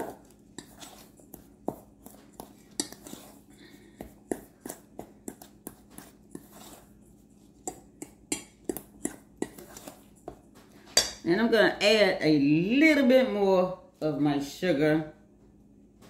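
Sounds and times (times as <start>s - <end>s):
utensil scraping mixing bowl: 0.0s - 11.2s.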